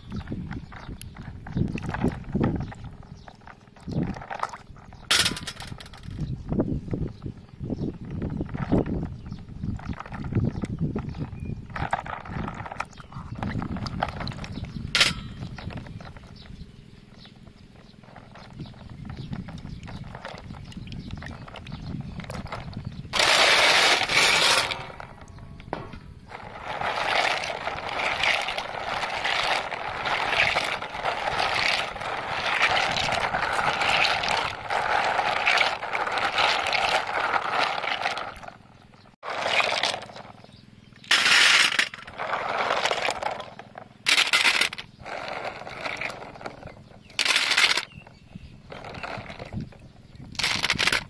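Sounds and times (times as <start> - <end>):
water sloshing in basin: 0.0 - 6.3, 17.4 - 51.0
snail shells clattering: 18.0 - 40.4, 41.0 - 48.0, 50.3 - 51.0.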